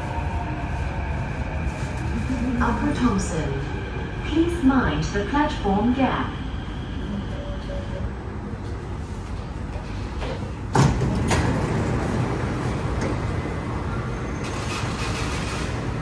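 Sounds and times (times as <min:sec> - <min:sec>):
train running noise: 0:00.0 - 0:16.0
train doors sliding shut: 0:09.8 - 0:13.7, 0:14.3 - 0:16.0.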